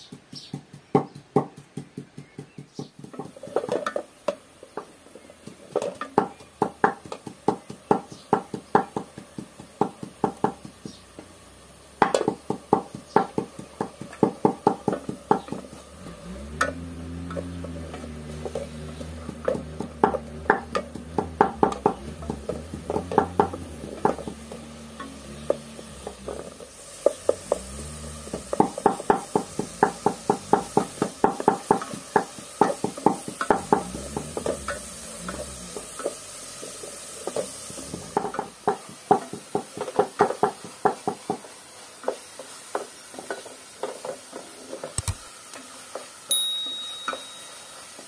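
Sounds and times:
wooden spatula scraping steel pot: 0:14.0 - 0:40.7.

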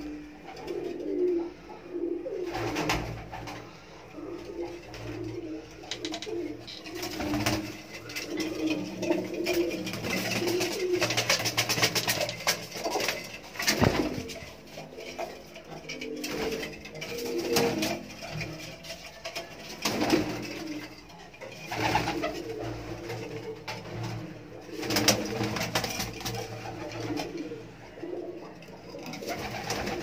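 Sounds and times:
pigeons cooing: 0:00.0 - 0:30.0
sharp clicks and knocks: 0:05.8 - 0:14.6.

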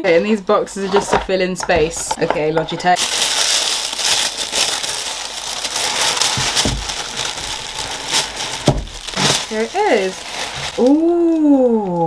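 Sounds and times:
tissue paper rustling: 0:02.9 - 0:12.0.

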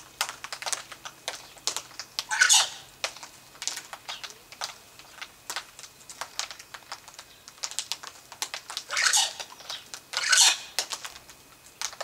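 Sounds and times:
cockatoo harsh rasps: 0:02.3 - 0:02.9, 0:08.9 - 0:09.4, 0:10.2 - 0:10.7.

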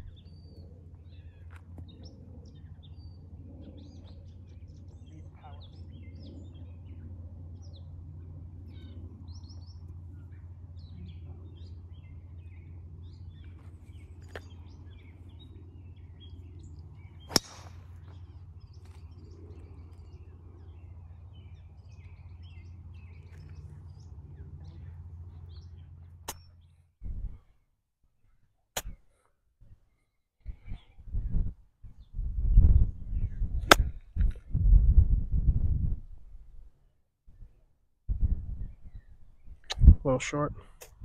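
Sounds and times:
low hum: 0:00.0 - 0:27.6
birds chirping: 0:00.0 - 0:27.8
golf club striking ball: 0:17.2 - 0:17.8.

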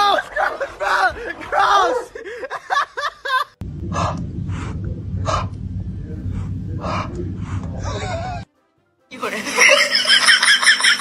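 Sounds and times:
steady low hum: 0:03.6 - 0:08.5.

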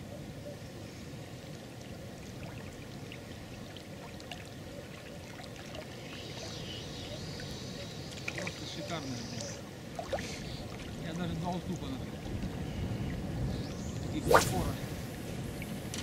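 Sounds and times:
small waves lapping: 0:01.2 - 0:16.0
wind rumbling on microphone: 0:09.7 - 0:16.0.

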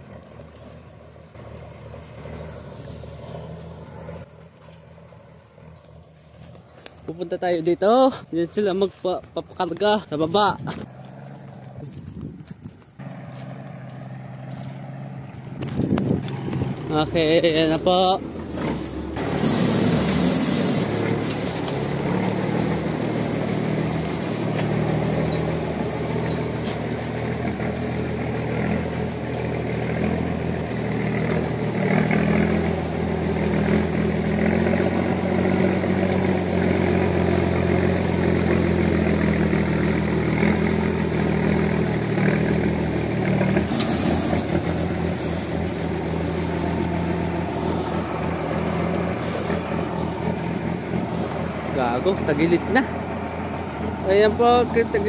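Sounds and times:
truck engine running: 0:00.0 - 0:55.0
short bursts of hiss: 0:19.3 - 0:20.9.

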